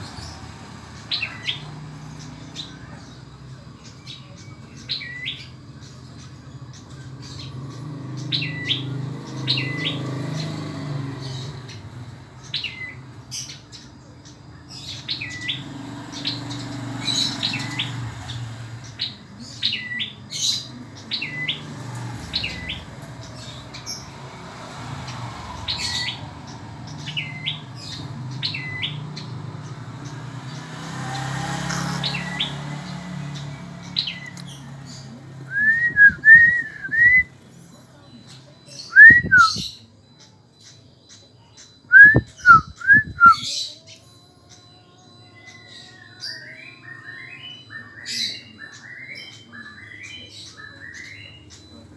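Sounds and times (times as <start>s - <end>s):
bird whistling high notes: 35.5s - 37.3s, 38.9s - 39.7s, 41.9s - 43.5s.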